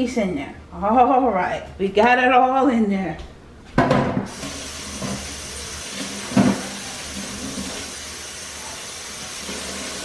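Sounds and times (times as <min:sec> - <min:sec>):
steady hissing noise: 0:04.3 - 0:10.0.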